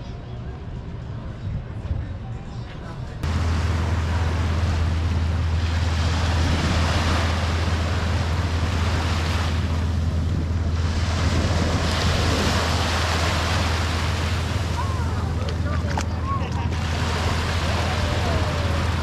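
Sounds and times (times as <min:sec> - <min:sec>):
wind rumble on microphone: 0:00.0 - 0:19.0
surf breaking on sandy beach: 0:03.2 - 0:19.0.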